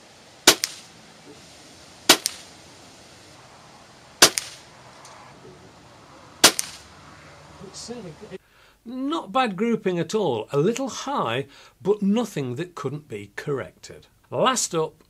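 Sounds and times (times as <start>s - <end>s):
air rifle shot crack: 0.4s - 0.9s, 2.1s - 2.5s, 4.2s - 5.3s, 6.4s - 6.9s.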